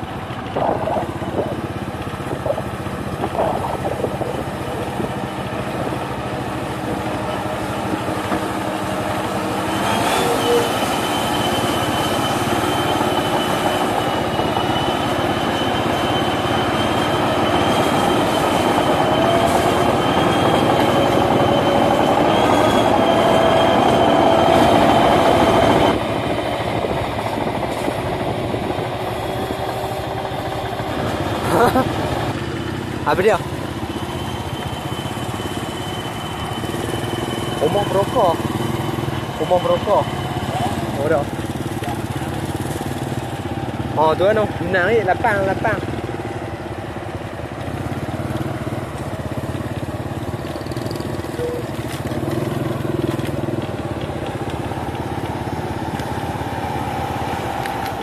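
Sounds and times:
thin high whine: 0.0 - 8.7, 33.1 - 41.2
combine harvester engine: 0.0 - 58.0.

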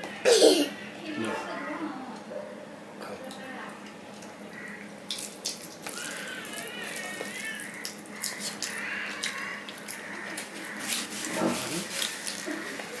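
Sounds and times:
chewing and lip-smacking: 5.1 - 12.9
wet squelching of rice mixed by hand: 5.1 - 13.0.

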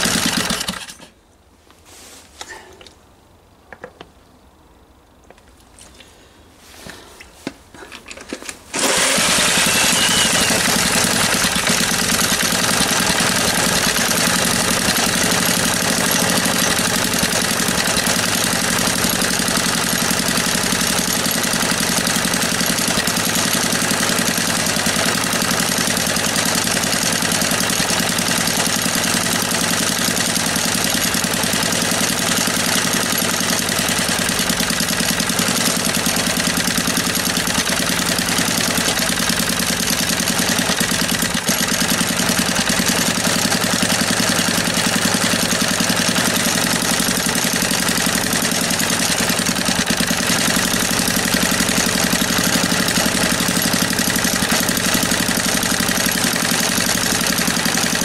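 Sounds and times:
small petrol engine running: 0.0 - 1.1, 8.1 - 58.0.

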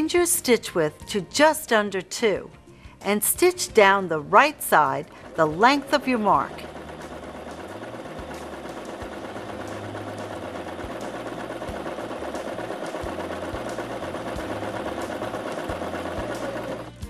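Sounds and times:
sewing machine running: 3.8 - 17.0.

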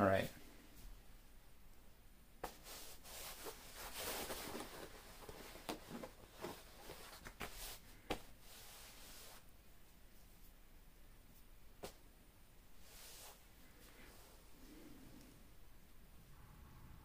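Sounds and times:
faint rustling: 2.4 - 10.6, 12.7 - 16.3.

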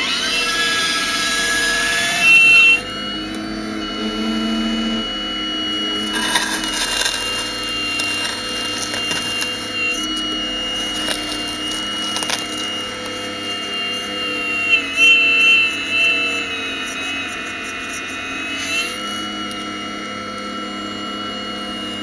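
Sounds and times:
hydraulic drive whine: 0.0 - 22.0
bucket scraping soil: 5.8 - 13.2.

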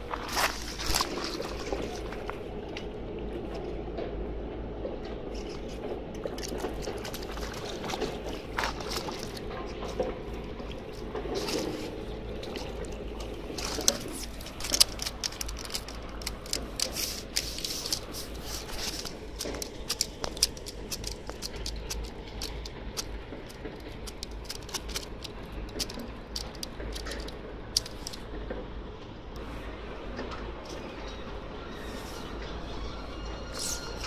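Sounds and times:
fish flopping in landing net: 0.2 - 2.3, 6.3 - 9.5.

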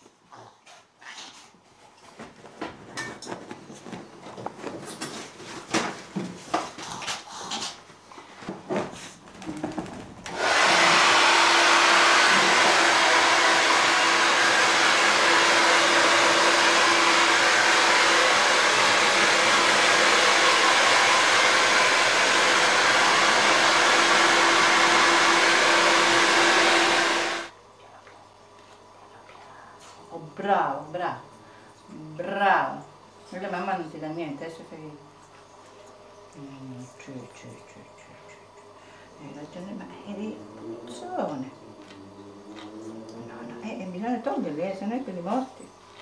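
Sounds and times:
hair dryer blowing: 10.2 - 27.5.

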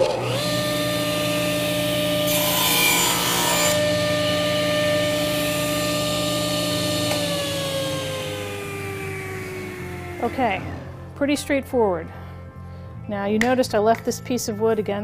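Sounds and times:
table saw motor whine: 0.0 - 11.2
saw blade cutting wood: 2.0 - 6.0.

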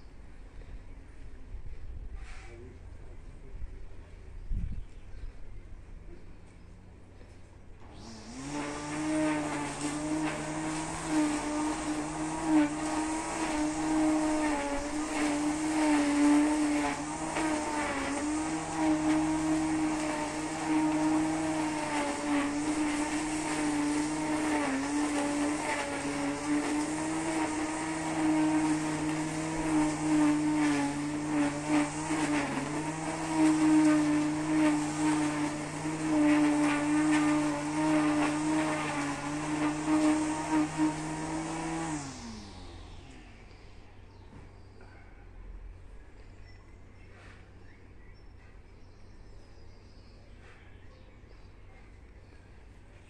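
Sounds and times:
string trimmer engine running: 7.3 - 45.0.

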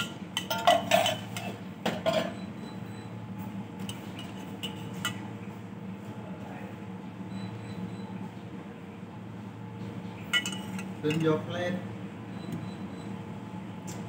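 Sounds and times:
dishes and utensils clinking: 0.0 - 2.4, 3.8 - 5.2, 10.3 - 11.3
low steady hum: 0.0 - 14.0.

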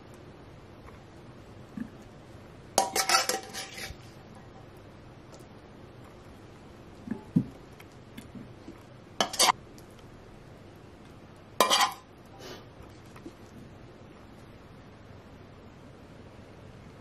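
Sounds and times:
metal spoon clinking against dishes: 2.8 - 4.0, 9.2 - 9.6, 11.6 - 12.1.

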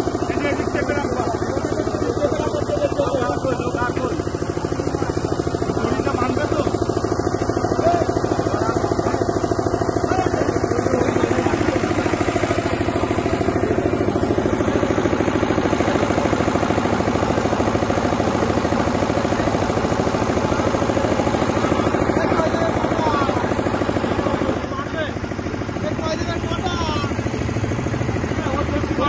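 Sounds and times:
engine idling: 0.0 - 29.0.

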